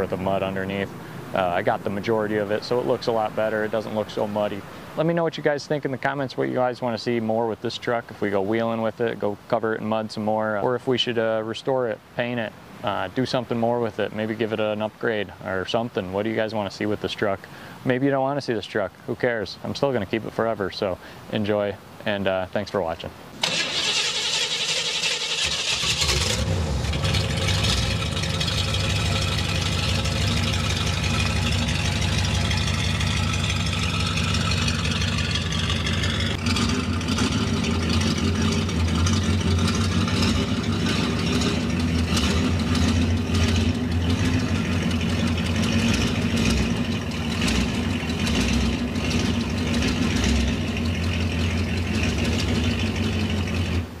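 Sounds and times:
pickup engine droning: 0.0 - 5.0, 23.4 - 54.0.

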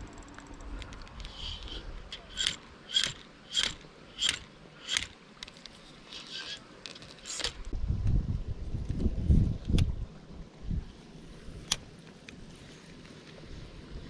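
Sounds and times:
spinning reel ratcheting: 0.0 - 5.2, 6.1 - 7.6.

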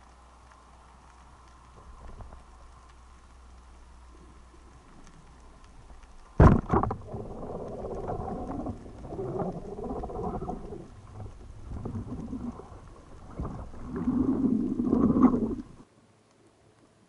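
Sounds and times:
wavering underwater noise: 4.1 - 15.8
speargun crack underwater: 5.6 - 15.8.

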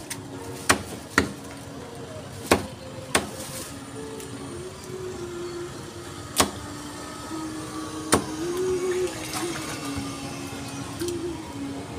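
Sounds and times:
steady hum: 0.0 - 11.9
cleaver chopping onto wooden block: 0.7 - 1.4, 2.5 - 3.3, 6.4 - 6.6.

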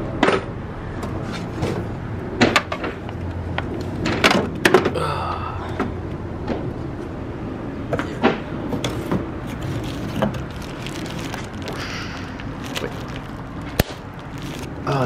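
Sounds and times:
plastic wrap rustling: 8.8 - 15.0.

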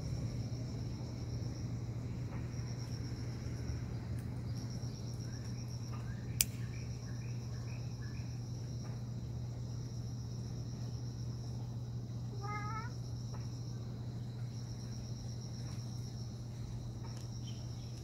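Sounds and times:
insect trill: 0.0 - 18.0
sharp click: 6.4 - 6.7.

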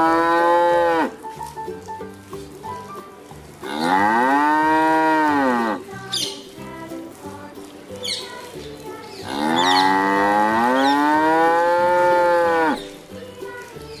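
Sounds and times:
cow mooing: 0.0 - 1.2, 3.6 - 5.8, 9.3 - 12.8.

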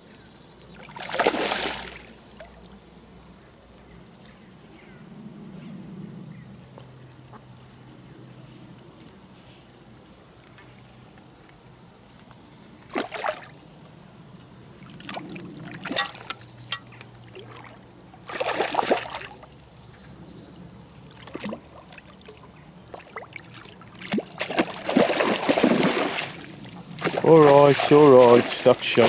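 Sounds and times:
fish splashing in water: 0.7 - 3.3, 12.8 - 13.6, 14.8 - 19.6, 21.1 - 29.0.

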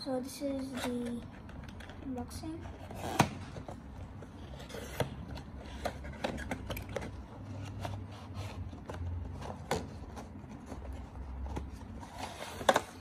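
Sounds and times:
cardboard scraping and rubbing: 2.6 - 13.0.

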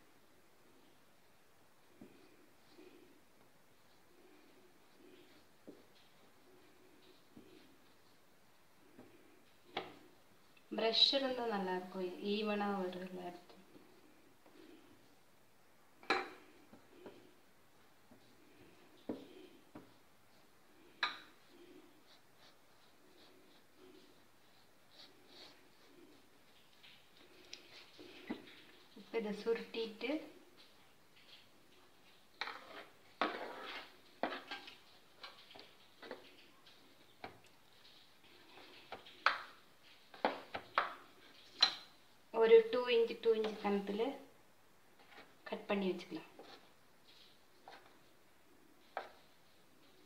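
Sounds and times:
hand rubbing paste over dough: 0.8 - 15.6, 16.4 - 41.6.

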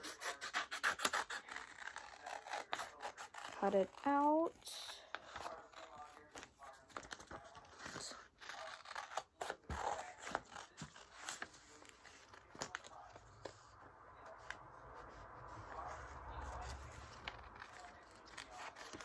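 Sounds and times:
scissors snipping paper: 0.0 - 4.4, 5.1 - 13.0, 16.5 - 19.0
paper rustling: 5.0 - 19.0.

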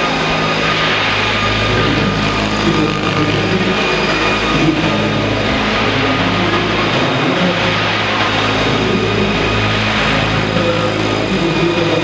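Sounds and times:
high whine: 0.0 - 12.0
model helicopter rotors: 0.0 - 12.0.

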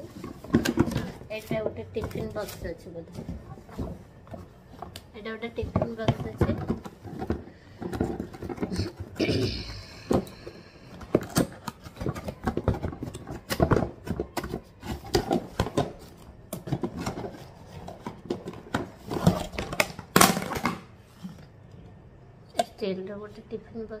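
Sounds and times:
metal box clattering: 0.0 - 4.4, 5.5 - 9.3.

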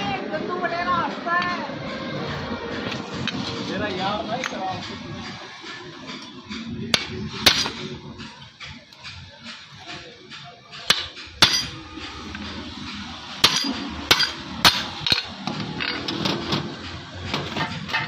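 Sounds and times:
background music: 0.0 - 18.0
hammer striking steel shaft: 4.4 - 16.0.

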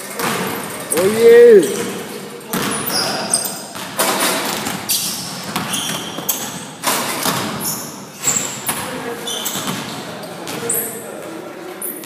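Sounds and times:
basketball thumping on gym floor: 0.2 - 3.0, 7.1 - 7.7
sneaker squeaks: 0.2 - 12.0.

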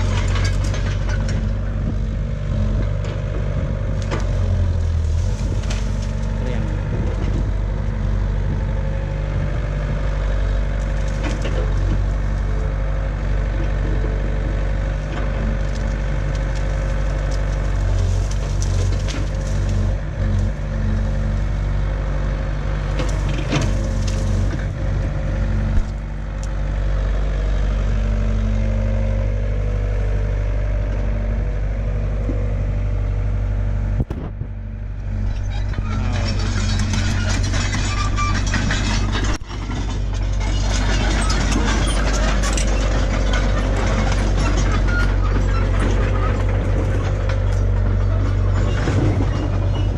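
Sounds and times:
excavator diesel engine running: 0.0 - 49.9
bamboo stalks cracking: 5.0 - 6.5, 15.6 - 19.9.

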